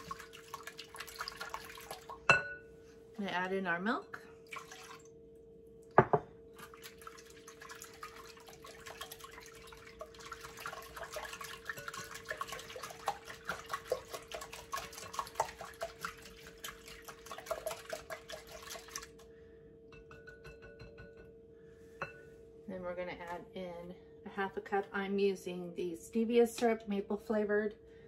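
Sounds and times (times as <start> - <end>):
whisk beating eggs: 6.6 - 19.2.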